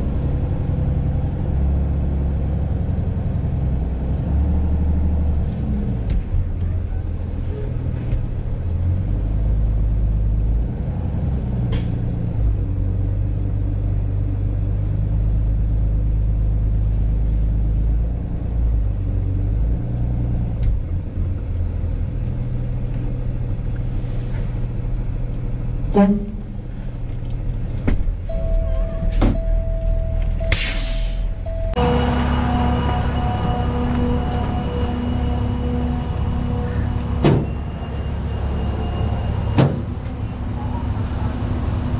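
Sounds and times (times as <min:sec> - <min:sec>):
truck engine idling: 0:24.5 - 0:41.9
short hiss of air: 0:30.5 - 0:31.3.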